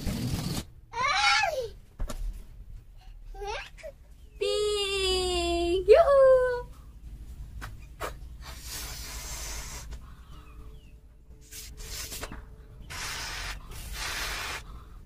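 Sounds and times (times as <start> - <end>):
breath blown into balloon: 8.4 - 10.0, 12.9 - 14.9.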